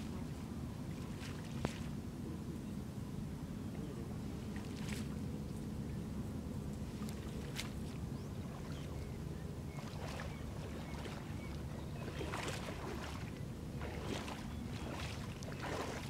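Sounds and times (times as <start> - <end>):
water splashing and sloshing: 0.0 - 2.1, 4.5 - 5.3, 6.8 - 16.0.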